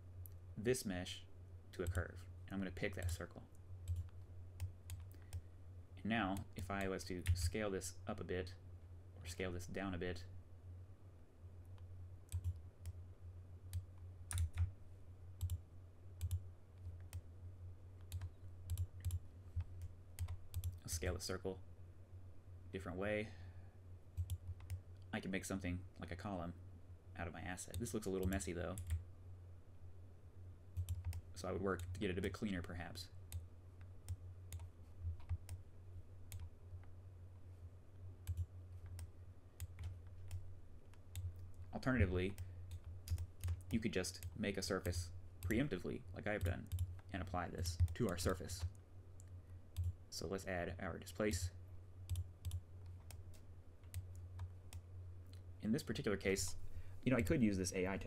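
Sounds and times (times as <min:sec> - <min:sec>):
steady low hum: 0:00.0 - 0:58.0
keyboard and mouse clicks: 0:13.7 - 0:14.7.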